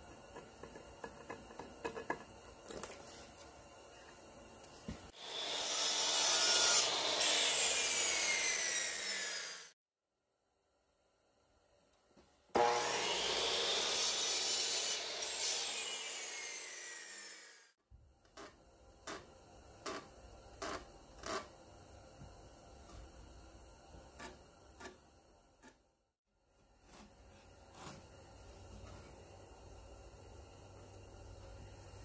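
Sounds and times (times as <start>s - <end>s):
miter saw cutting wood: 5.2s - 9.8s, 12.6s - 17.7s.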